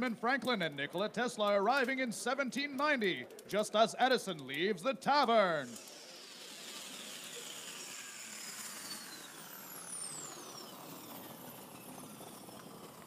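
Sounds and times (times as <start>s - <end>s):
mechanical whir: 5.4s - 13.0s
high whistling tones sliding down: 5.5s - 13.0s.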